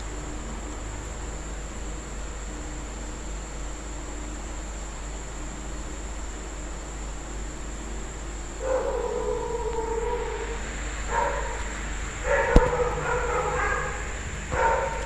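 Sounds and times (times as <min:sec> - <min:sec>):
faint high whine: 0:00.0 - 0:15.0
animal calls: 0:08.6 - 0:15.0.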